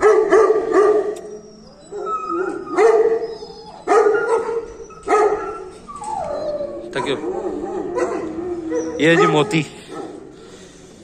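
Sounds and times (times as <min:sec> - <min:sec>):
dogs howling barks: 0:00.0 - 0:10.9.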